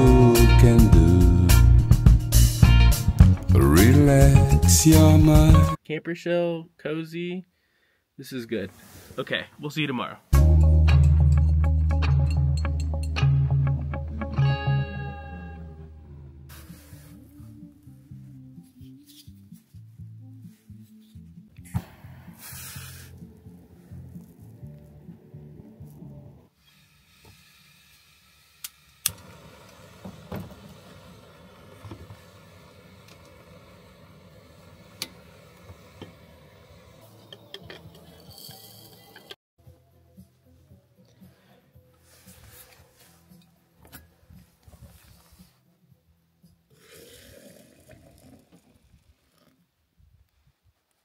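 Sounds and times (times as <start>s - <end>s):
camp stove hissing: 22.3s - 24.6s, 26.5s - 39.4s
hot water pouring and splashing: 29.0s - 37.1s.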